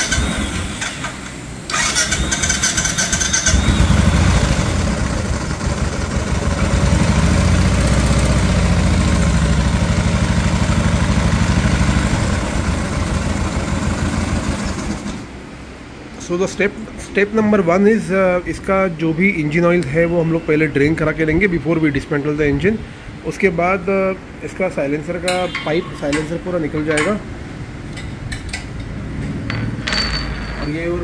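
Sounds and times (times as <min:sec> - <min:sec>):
motorcycle engine idling: 0:03.0 - 0:14.9
engine bearing noise: 0:27.9 - 0:31.0.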